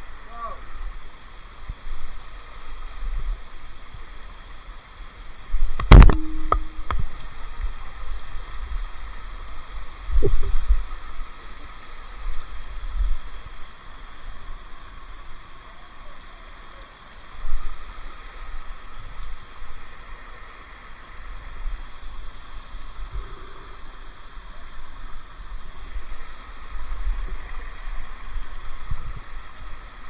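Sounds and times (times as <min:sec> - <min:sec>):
steady background hiss: 0:00.0 - 0:30.0
sharp ringing knock: 0:05.9 - 0:06.9.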